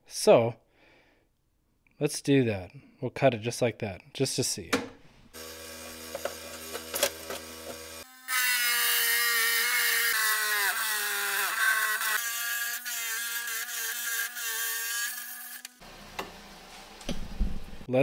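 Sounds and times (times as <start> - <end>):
saw blade cutting stone whine: 5.4 - 15.8
saw motor humming: 5.4 - 16.8.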